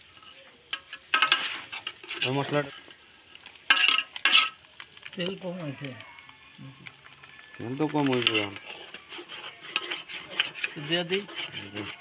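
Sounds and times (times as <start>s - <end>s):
metal ladle scraping a pot: 0.0s - 5.1s, 7.9s - 12.0s.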